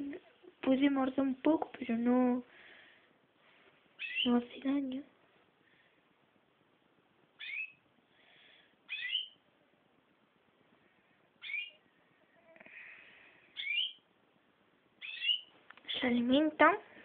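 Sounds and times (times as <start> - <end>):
small bird chirping: 4.0 - 4.4, 7.3 - 7.9, 8.8 - 9.4, 11.4 - 12.6, 13.5 - 14.1, 15.0 - 15.5.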